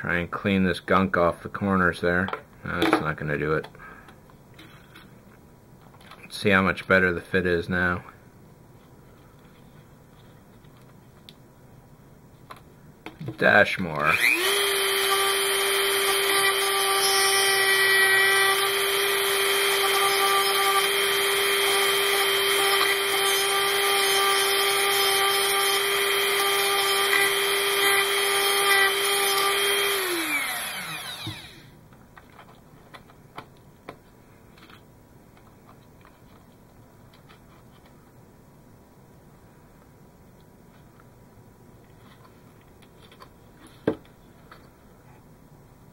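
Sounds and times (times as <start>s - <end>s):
rotary tool cutting plastic: 14.0s - 31.7s.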